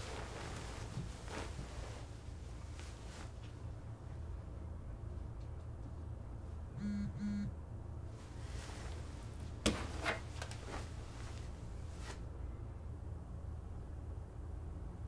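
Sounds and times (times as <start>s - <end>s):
bedding rustling: 0.0s - 4.4s, 8.2s - 12.3s
low room hum: 0.0s - 15.0s
phone buzzes: 6.8s - 7.5s.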